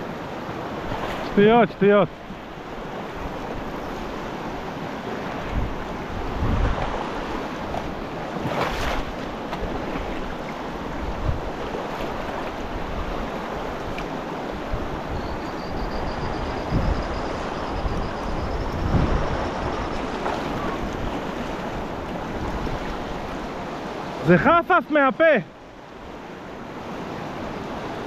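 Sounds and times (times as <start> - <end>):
fast-flowing river rushing: 0.0 - 28.0
wind gusting on microphone: 2.8 - 9.0, 10.8 - 23.6.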